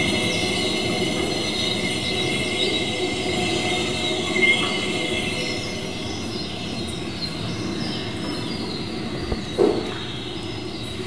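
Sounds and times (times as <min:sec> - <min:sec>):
bright squeak: 0:00.0 - 0:07.0
metallic drone of high tones: 0:00.0 - 0:09.2.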